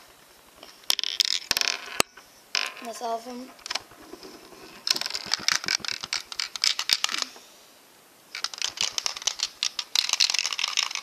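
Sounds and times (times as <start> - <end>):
toy machine rattling and clicking: 8.4 - 11.0.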